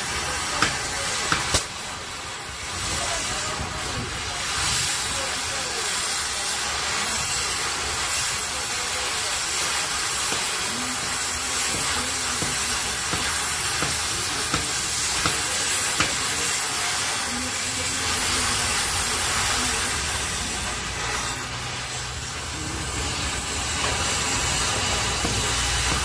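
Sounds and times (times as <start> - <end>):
cutting torch hissing: 0.0 - 26.0
sharp pops: 0.6 - 1.8, 11.8 - 16.4.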